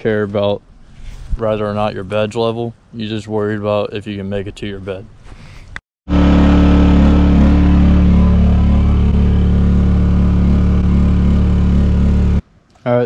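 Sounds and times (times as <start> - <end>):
motor running steadily: 6.1 - 12.4.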